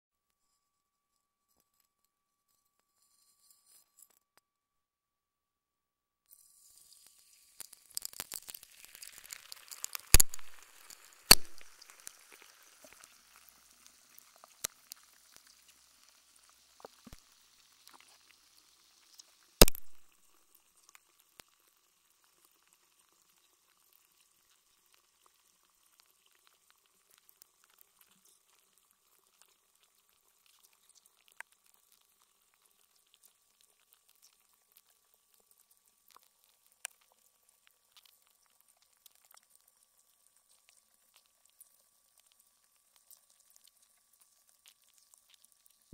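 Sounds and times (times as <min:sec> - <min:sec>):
faint ticks and pops: 0:06.3 - 0:45.9
ice fizzing and crackling: 0:06.3 - 0:45.9
ice cracking sharply: 0:07.8 - 0:11.8.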